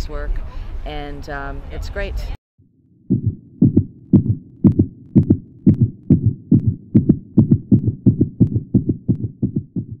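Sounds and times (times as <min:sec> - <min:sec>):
heartbeat thumps: 0:03.0 - 0:10.0.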